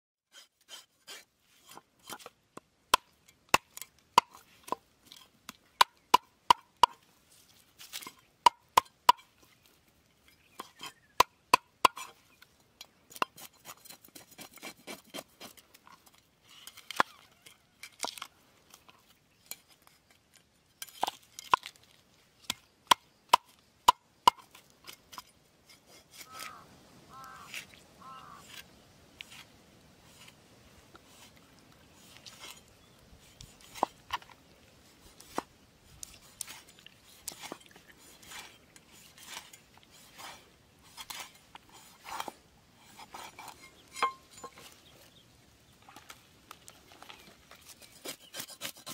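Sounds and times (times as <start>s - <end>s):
soft scraping of fish scales: 24.8s - 45.2s.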